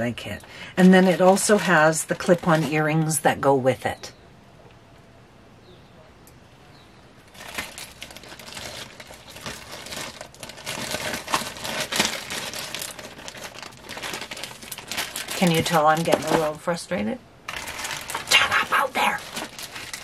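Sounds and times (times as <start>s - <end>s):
packing wrap crinkling: 0.0s - 3.2s, 7.3s - 16.8s, 17.4s - 20.0s.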